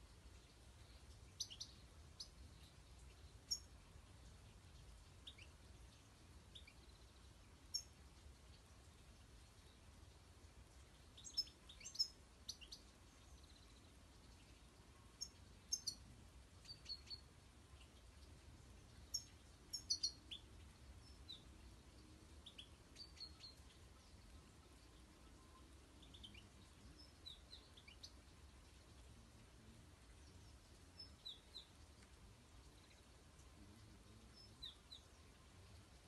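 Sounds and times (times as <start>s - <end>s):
faint background hiss: 0.0s - 36.0s
goldfinches twittering: 19.1s - 21.4s.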